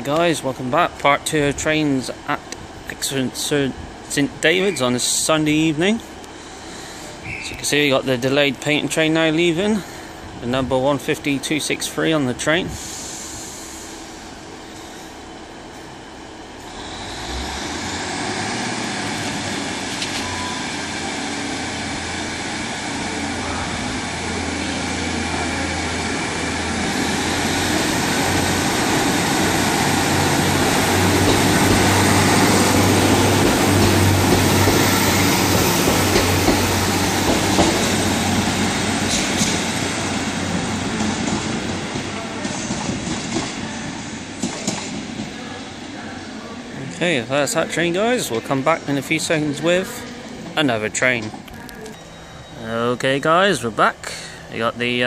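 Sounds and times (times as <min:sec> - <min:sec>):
diesel train engine drone: 0:00.0 - 0:55.0
wheels clicking over rail joints: 0:26.9 - 0:38.2.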